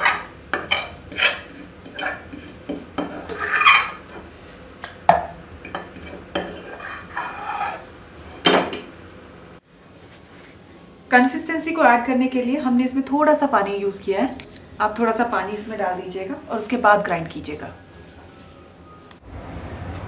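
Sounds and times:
spoon scraping metal pan: 0:00.0 - 0:04.3, 0:05.6 - 0:08.5.

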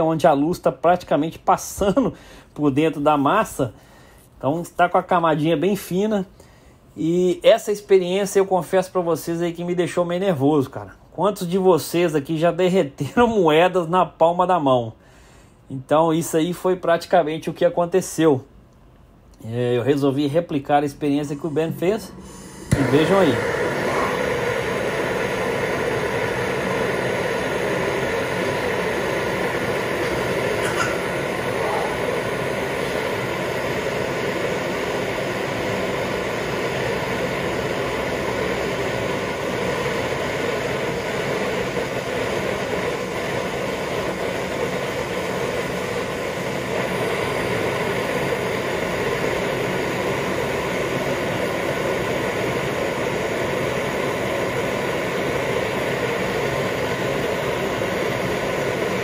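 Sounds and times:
blowtorch flame hissing: 0:21.0 - 0:59.0.

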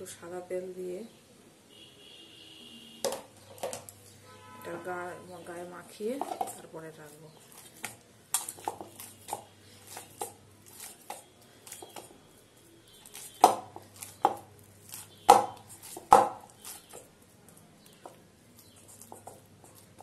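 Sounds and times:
dough knocking in metal bowl: 0:15.2 - 0:17.0.

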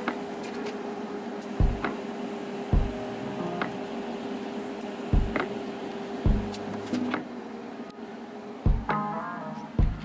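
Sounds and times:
welding arc humming and hissing: 0:00.0 - 0:10.0
dull low thumps: 0:06.3 - 0:06.5.

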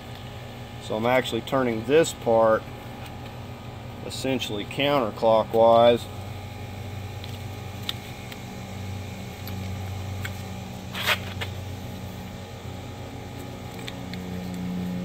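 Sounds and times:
steady low hum: 0:00.0 - 0:15.0
metal scrape: 0:10.9 - 0:11.5.

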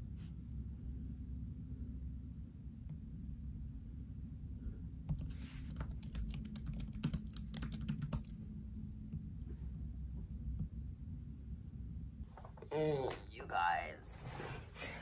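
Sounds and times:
typing on laptop keyboard: 0:05.1 - 0:08.4.

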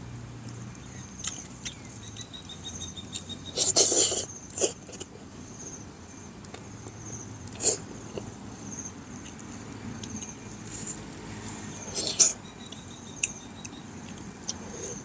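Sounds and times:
insects chirping in trills: 0:00.8 - 0:10.7, 0:11.7 - 0:15.0
mouth smacking while eating: 0:03.1 - 0:05.1.

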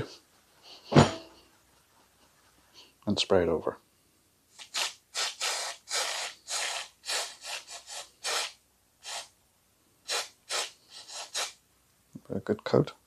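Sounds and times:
aerosol spray can hissing: 0:04.6 - 0:09.3, 0:10.1 - 0:11.6.

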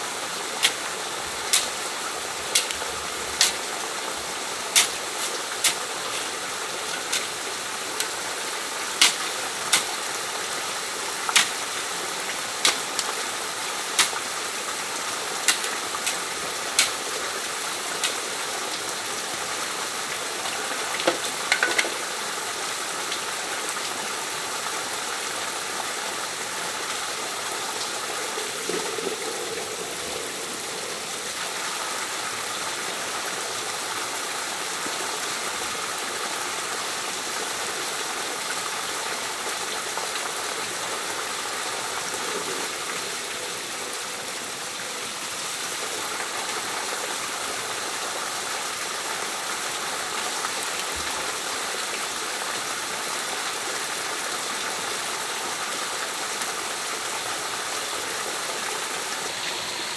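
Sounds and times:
running water: 0:00.0 - 0:59.9.

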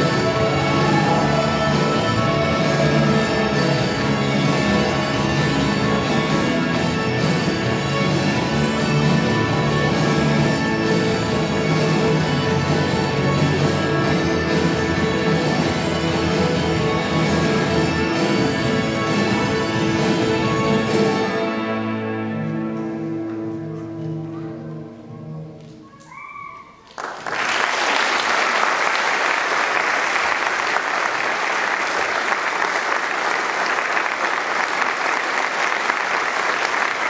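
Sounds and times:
music with long held notes: 0:00.0 - 0:25.7
audience clapping: 0:26.8 - 0:37.0.

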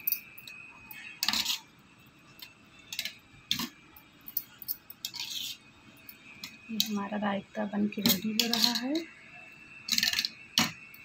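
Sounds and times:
spoon clinking and scraping bowl: 0:00.0 - 0:01.7, 0:04.4 - 0:07.0, 0:08.0 - 0:09.1, 0:09.9 - 0:10.7.

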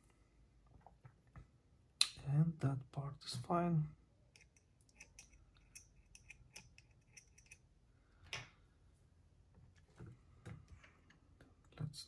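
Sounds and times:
small parts and tools clicking: 0:04.3 - 0:07.7.

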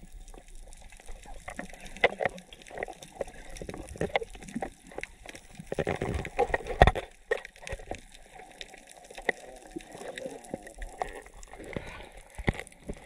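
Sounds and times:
water sloshing underwater: 0:00.0 - 0:13.0.

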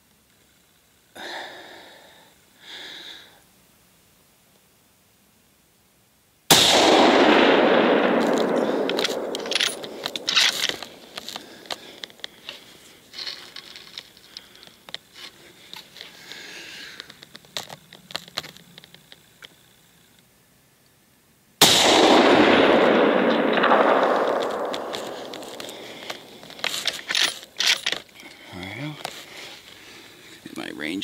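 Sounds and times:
rifle shot echoing: 0:06.5 - 0:12.0, 0:21.6 - 0:27.8
sharp metallic clicks: 0:06.7 - 0:12.6, 0:21.9 - 0:28.2.

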